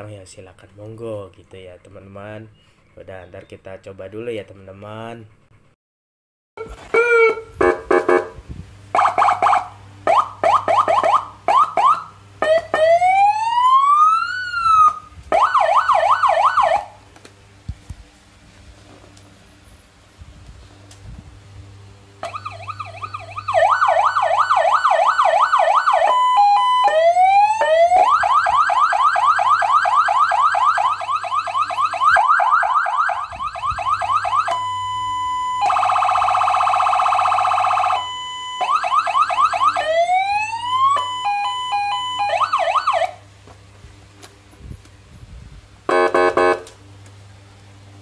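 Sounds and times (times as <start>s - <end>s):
electronic siren cycling tones: 6.6s - 17.0s, 22.2s - 43.2s, 45.9s - 46.7s.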